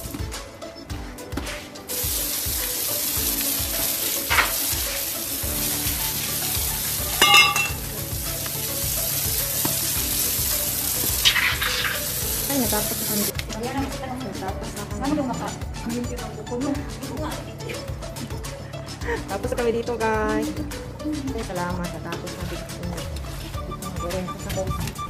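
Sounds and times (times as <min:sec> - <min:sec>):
faint music: 0:00.0 - 0:25.0
hose water splashing on tiles: 0:01.8 - 0:13.6.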